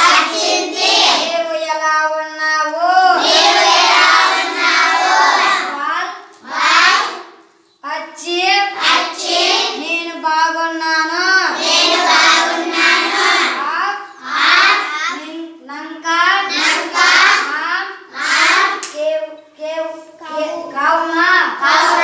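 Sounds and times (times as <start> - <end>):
children singing in unison: 0.0 - 1.3, 3.0 - 5.8, 6.4 - 7.2, 8.8 - 9.8, 11.4 - 15.2, 16.4 - 18.8, 20.4 - 22.0.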